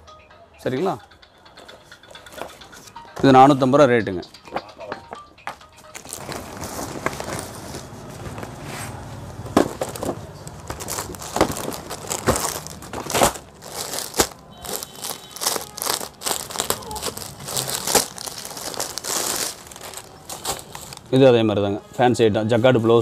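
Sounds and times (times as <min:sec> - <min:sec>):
plastic wrapper crinkling: 0:05.9 - 0:08.6, 0:09.4 - 0:21.2.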